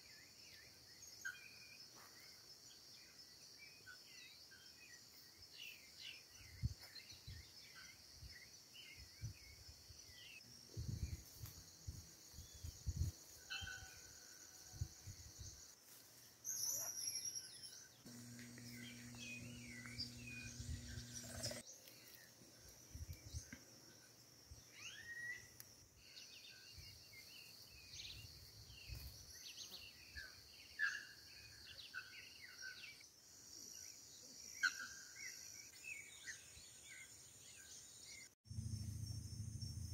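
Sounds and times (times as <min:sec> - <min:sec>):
insect drone: 0:00.1 - 0:39.9
bird chirps and calls: 0:16.5 - 0:21.6
low hum: 0:18.1 - 0:21.6, 0:38.5 - 0:39.9.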